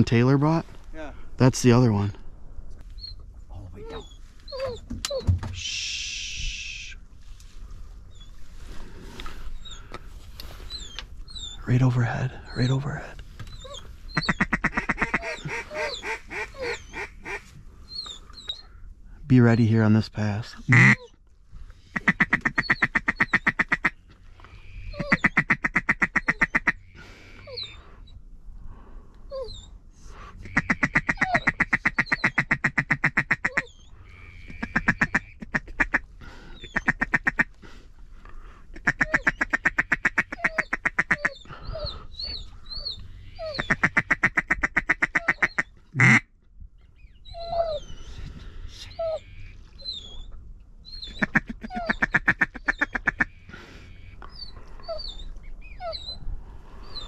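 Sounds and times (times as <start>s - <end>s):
duck call quacking: 14.2s - 17.4s, 20.7s - 21.0s, 30.4s - 33.7s, 34.4s - 36.0s, 38.8s - 41.4s, 43.6s - 46.2s.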